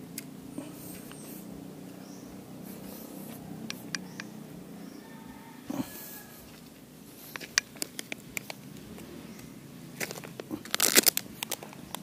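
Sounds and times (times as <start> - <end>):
plastic cup crackling and scraping: 7.2 - 9.1, 10.0 - 12.0.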